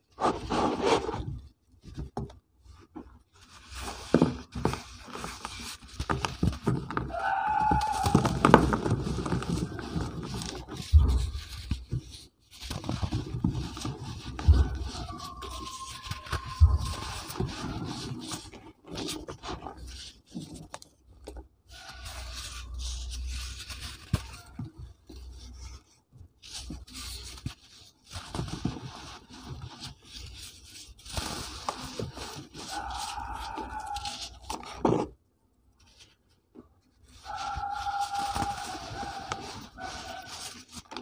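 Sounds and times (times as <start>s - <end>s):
cement blocks crunching and crumbling: 4.1s - 11.9s.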